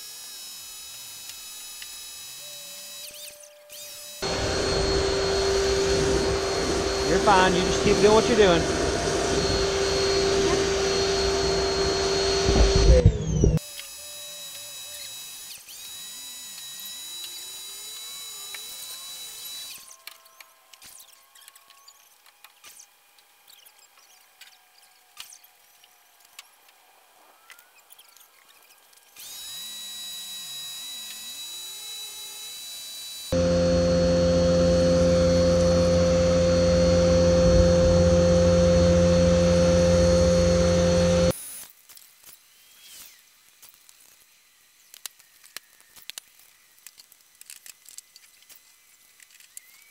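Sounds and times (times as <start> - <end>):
pressure washer motor whine: 3.7 - 14.0, 33.3 - 41.4.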